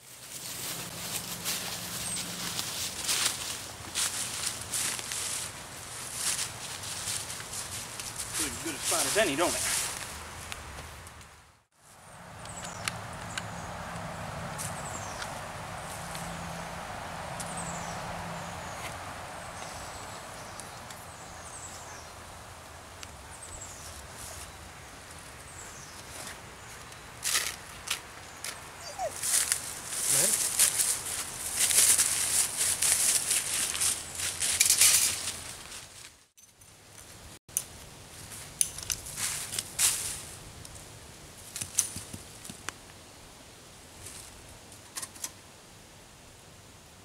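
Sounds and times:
dry leaves rustling and crunching: 0.0 - 10.6, 23.6 - 36.3, 38.1 - 40.5
gear clicks and rustles: 25.5 - 40.0.

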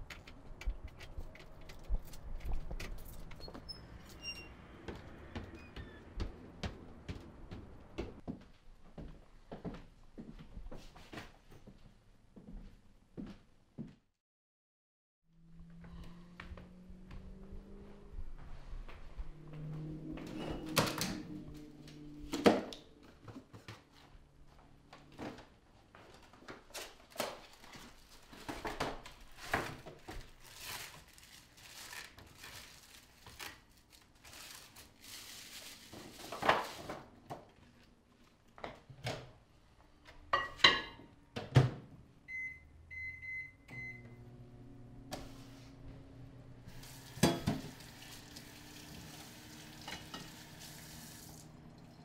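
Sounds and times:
plastic film crinkling: 26.5 - 36.9
microwave keypad beeps: 42.3 - 44.2
microwave oven humming: 42.3 - 52.0.

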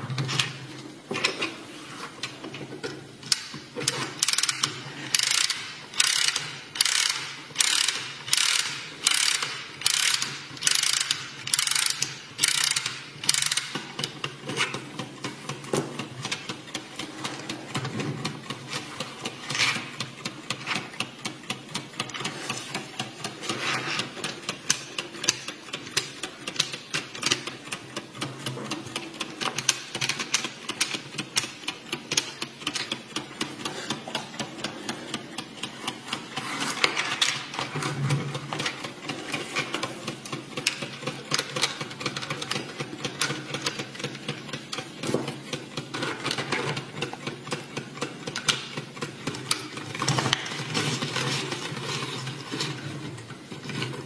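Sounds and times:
clock escapement ticking: 4.2 - 14.4.

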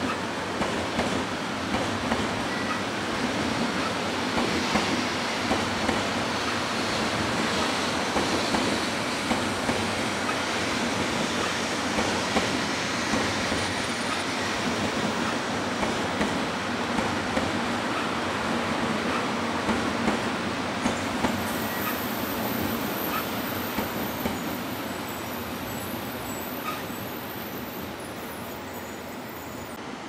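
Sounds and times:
train rumbling past: 0.0 - 30.0.

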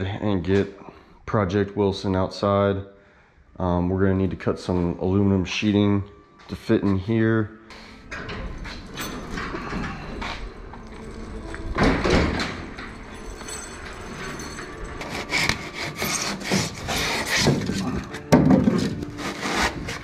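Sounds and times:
foam board scraping metal hull: 15.4 - 20.0.

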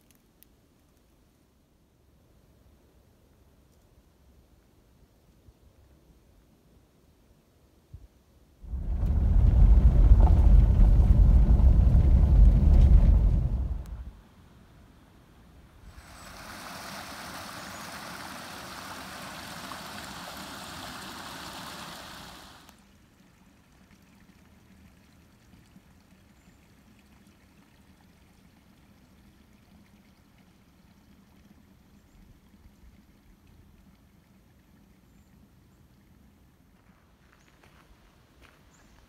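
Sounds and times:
water rushing: 8.6 - 14.2, 15.7 - 31.2.

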